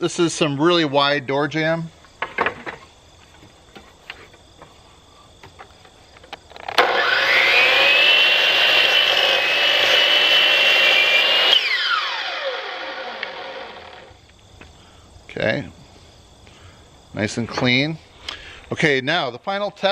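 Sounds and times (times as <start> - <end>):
miter saw whining: 6.5 - 14.3
saw cutting through wood: 6.7 - 14.2.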